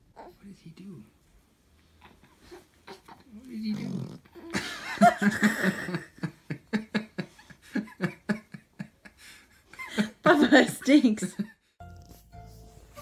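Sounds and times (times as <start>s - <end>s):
person laughing heartily: 4.5s - 11.6s.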